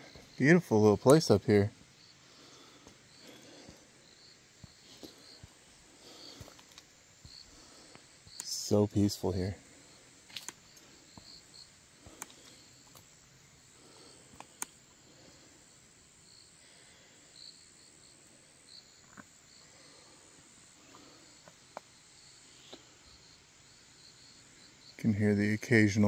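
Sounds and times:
insect chirps: 0.0 - 26.0
light clicks: 14.3 - 14.8.

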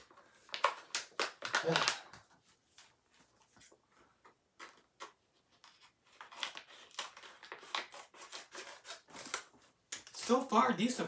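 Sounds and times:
plastic pouch crinkling: 0.3 - 2.2
scissors snipping plastic: 5.0 - 10.4.

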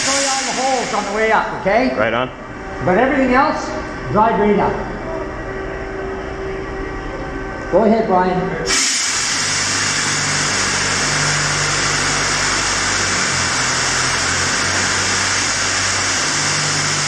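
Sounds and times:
loud steady hiss: 0.0 - 1.4, 8.6 - 17.0
low motor hum: 0.0 - 17.0.

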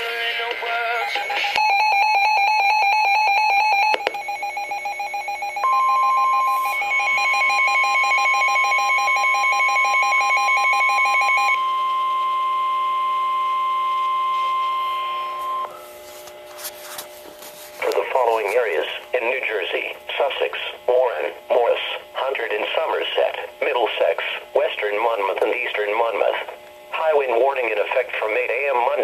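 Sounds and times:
steady alarm tone: 0.7 - 16.1
fast pulsing alarm beep: 3.4 - 11.6.

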